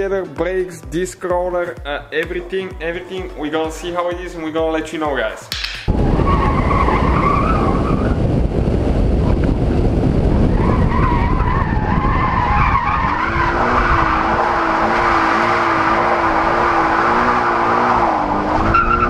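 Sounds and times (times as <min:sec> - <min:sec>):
wind and road noise: 0:05.7 - 0:19.0.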